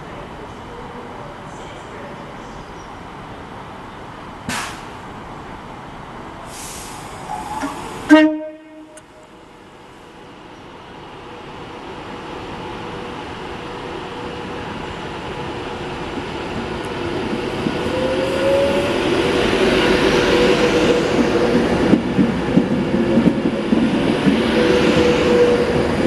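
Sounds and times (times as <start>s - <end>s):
electric train rumbling: 0.0s - 26.0s
train horn blast: 7.6s - 9.3s.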